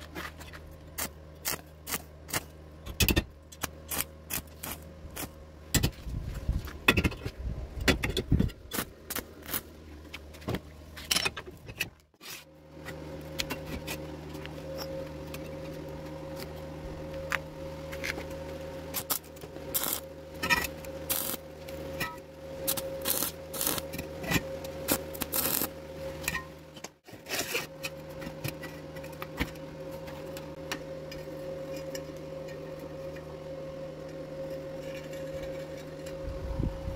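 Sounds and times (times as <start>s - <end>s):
steady electrical hum: 0.0s - 36.9s
welding arc crackling: 1.0s - 2.5s, 3.6s - 5.4s, 8.7s - 9.7s, 18.9s - 25.8s.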